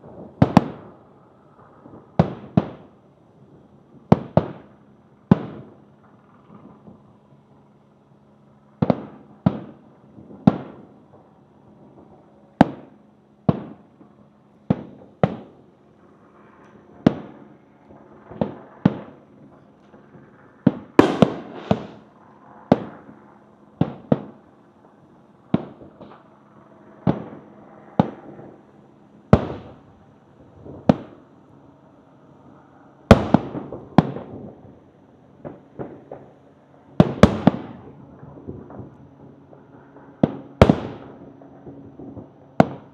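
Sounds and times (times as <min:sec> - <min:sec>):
fireworks bursting with bangs: 0:00.0 - 0:03.0, 0:04.0 - 0:07.1, 0:08.7 - 0:15.7, 0:16.9 - 0:26.4, 0:27.0 - 0:28.7, 0:29.3 - 0:31.3, 0:33.1 - 0:34.8, 0:37.0 - 0:39.4, 0:40.0 - 0:42.9
faint steady hum: 0:00.0 - 0:42.9.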